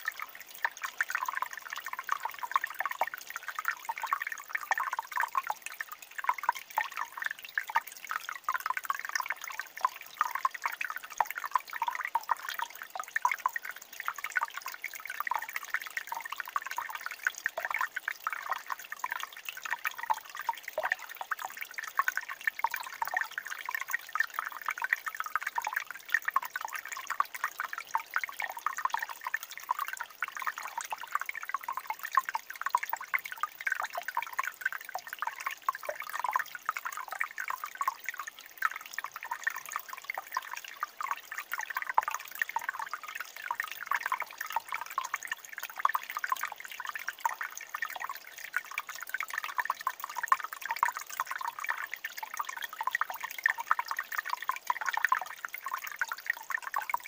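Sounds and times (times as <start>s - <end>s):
stream water babbling over stones: 0.0s - 57.0s.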